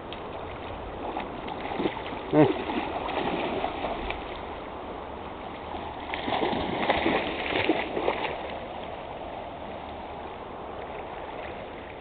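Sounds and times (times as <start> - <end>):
shallow stream flowing: 0.0 - 12.0
splashing in water: 0.1 - 4.7, 5.4 - 9.0.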